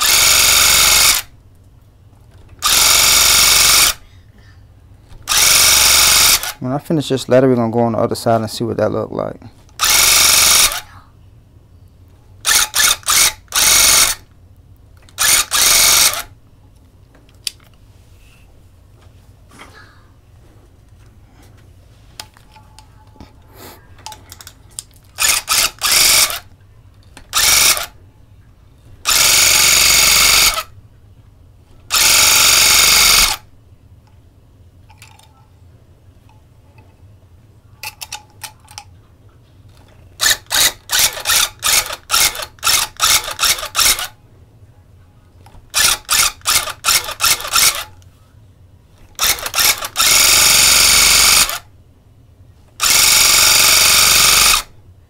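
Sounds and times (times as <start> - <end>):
electric tufting gun bursts: 0.0 - 1.3, 5.3 - 6.6, 9.8 - 10.8, 15.2 - 16.3, 25.2 - 26.4, 27.3 - 27.9, 29.1 - 30.7, 31.9 - 33.4, 40.2 - 44.1, 45.7 - 47.9, 49.2 - 51.6, 52.8 - 54.7.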